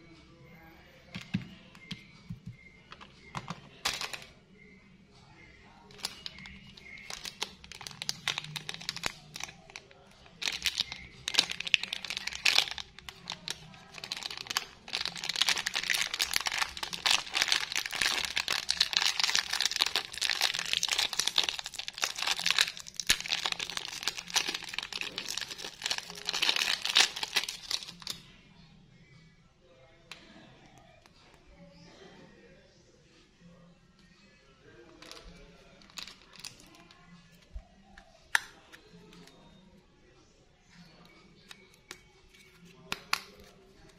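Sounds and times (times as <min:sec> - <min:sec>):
plastic wrapper crinkling: 0:03.8 - 0:04.3, 0:05.9 - 0:28.2, 0:35.0 - 0:36.9.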